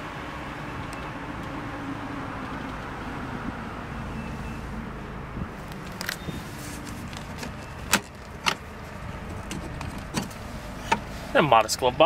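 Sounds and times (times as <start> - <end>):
glove box latch clicks: 7.1 - 8.7.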